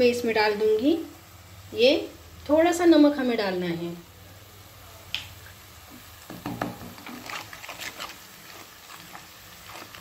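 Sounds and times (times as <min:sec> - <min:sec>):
onions in oil: 0:00.0 - 0:10.0
spoon scraping a pan: 0:06.4 - 0:10.0.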